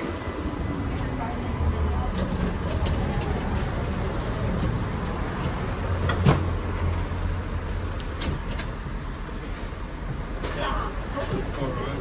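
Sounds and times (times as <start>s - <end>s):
streetcar hum and rumble: 0.0s - 12.0s.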